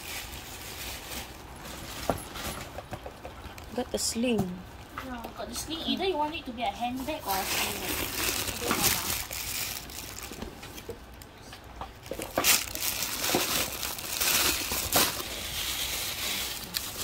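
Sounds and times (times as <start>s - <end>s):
plastic wrap crinkling: 0.0s - 17.0s.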